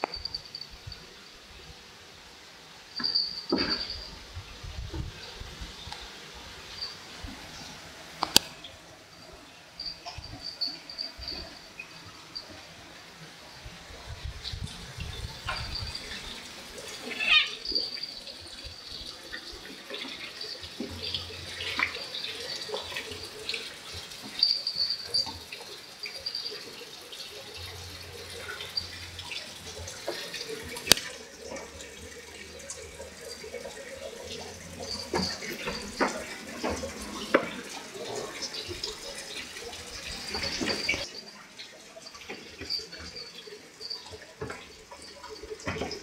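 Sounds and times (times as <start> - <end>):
high-pitched squeaking: 16.9 - 18.2.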